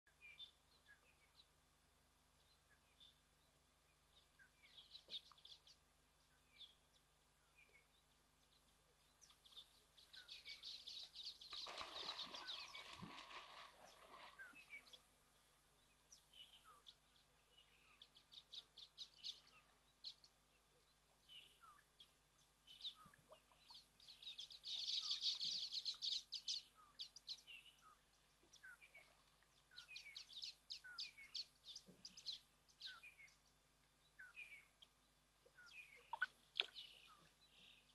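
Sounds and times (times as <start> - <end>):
bird calls and chirps: 3.9 - 15.1, 15.8 - 37.9
hippo churning water: 11.5 - 15.0.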